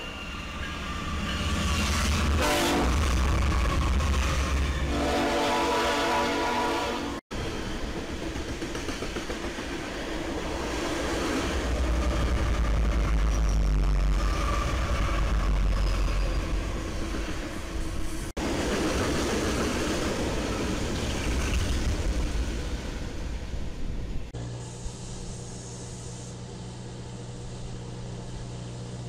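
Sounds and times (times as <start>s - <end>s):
railcars rolling over rails: 0.0s - 5.9s, 7.3s - 24.3s
diesel locomotive engine rumbling: 0.0s - 29.0s.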